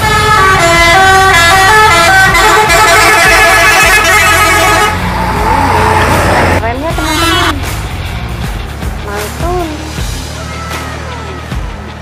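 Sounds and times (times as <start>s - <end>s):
musical vehicle horn tune: 0.0s - 5.2s, 7.0s - 7.7s.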